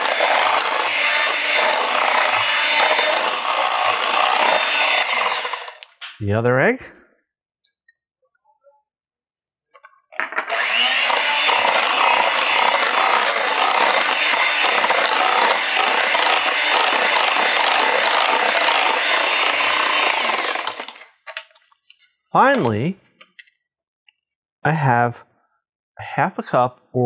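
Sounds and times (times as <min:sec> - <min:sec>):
electric hand mixer beating: 0:00.0 - 0:05.8, 0:10.5 - 0:21.0.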